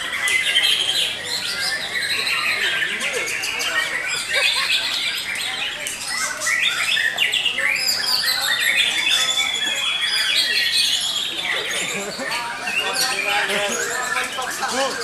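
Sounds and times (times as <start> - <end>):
birds singing: 0.0 - 15.0.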